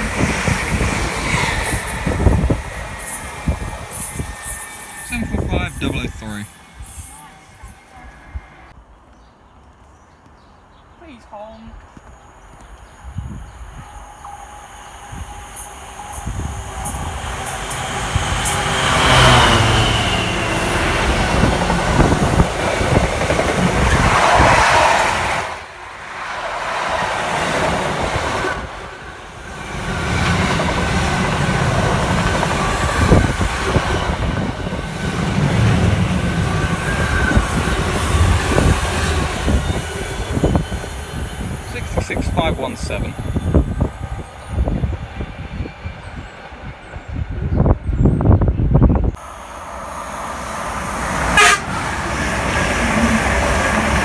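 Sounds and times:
freight train rolling rumble: 0:00.0 - 0:08.2, 0:13.2 - 0:54.0
rail clatter: 0:16.8 - 0:29.0.

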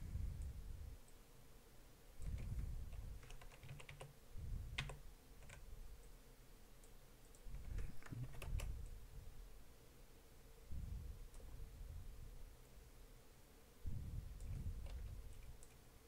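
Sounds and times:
keyboard and mouse clicks: 0:02.2 - 0:06.2, 0:06.8 - 0:09.0, 0:14.3 - 0:15.9.

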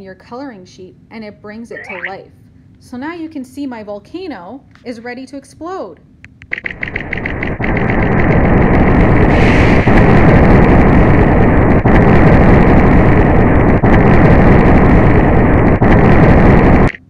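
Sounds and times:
volcano eruption rumble and hiss: 0:07.2 - 0:16.9.

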